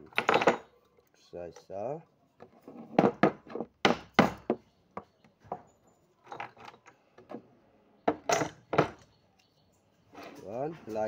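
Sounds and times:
metal tools knocking on wooden table: 0.0s - 0.7s, 2.4s - 5.7s, 8.1s - 9.0s.

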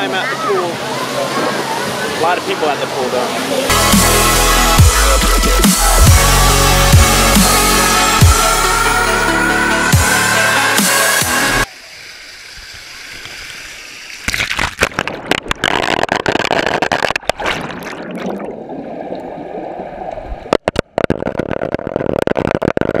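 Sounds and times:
water rushing and splashing: 0.0s - 6.4s, 11.0s - 21.3s.

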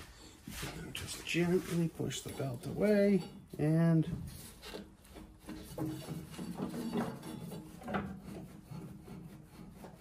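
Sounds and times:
bearings grinding: 0.0s - 10.0s.

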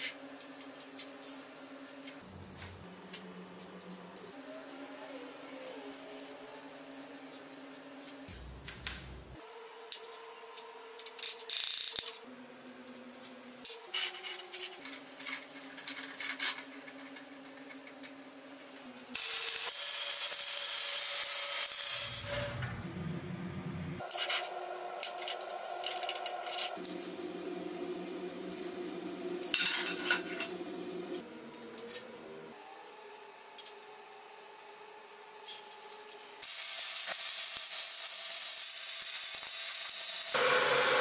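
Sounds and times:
metal parts clinking: 8.1s - 9.3s, 13.7s - 18.1s, 24.0s - 27.1s, 29.4s - 30.6s
welding arc: 19.2s - 22.7s, 36.4s - 41.0s.

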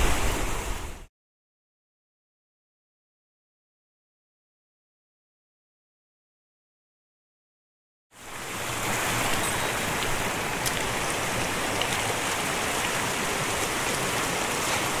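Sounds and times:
stream running over rocks: 8.2s - 15.0s.

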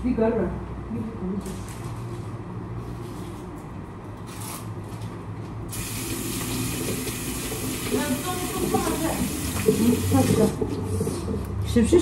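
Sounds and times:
tap water running into sink: 5.7s - 11.3s.

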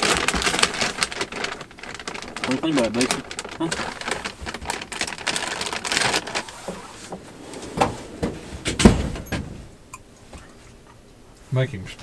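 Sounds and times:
short rustles: 3.8s - 10.8s
heavy thump: 6.6s - 9.8s.

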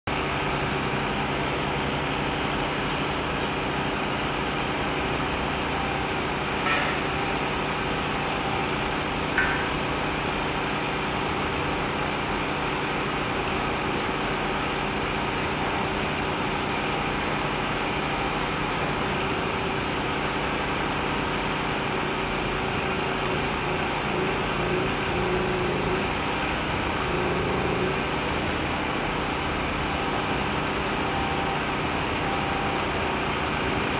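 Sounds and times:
ship engine drone: 21.0s - 33.9s.

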